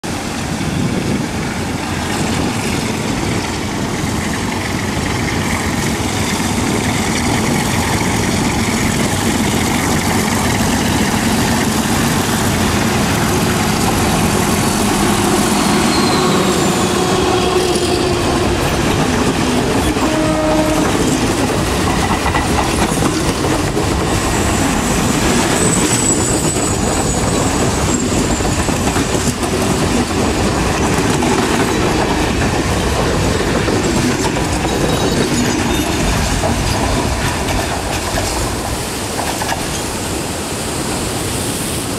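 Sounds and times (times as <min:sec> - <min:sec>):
diesel locomotive engine: 0:00.0 - 0:41.9
train wheels clacking over rail joints: 0:00.4 - 0:40.0
train horn: 0:14.8 - 0:18.8, 0:19.8 - 0:21.2.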